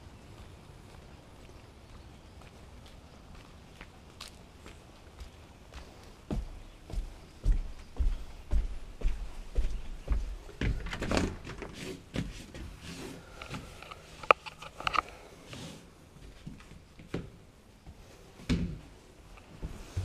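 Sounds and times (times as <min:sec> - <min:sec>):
footsteps: 0:00.2 - 0:15.0, 0:19.3 - 0:20.0.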